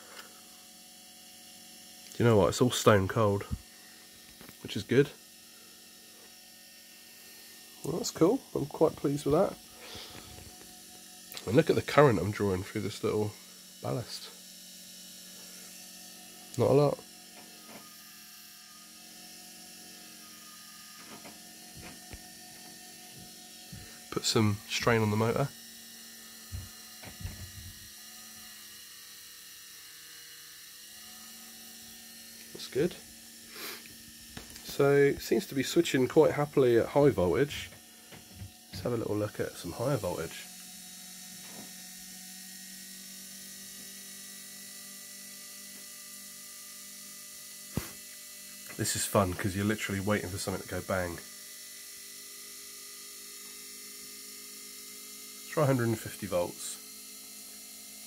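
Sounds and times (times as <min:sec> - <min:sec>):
faint electrical hum: 0:00.0 - 0:25.6, 0:31.2 - 0:40.7
electric motor tones: 0:00.0 - 0:58.0.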